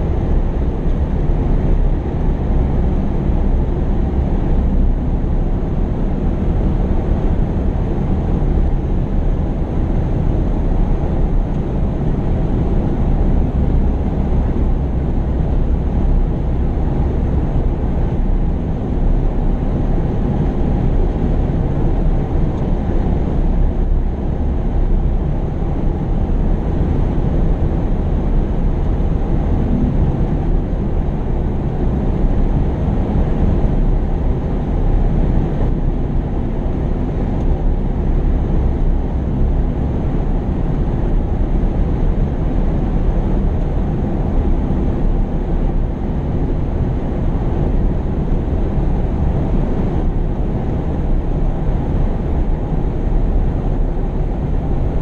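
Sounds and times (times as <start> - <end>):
heavy diesel machinery rumbling: 0.0 - 55.0.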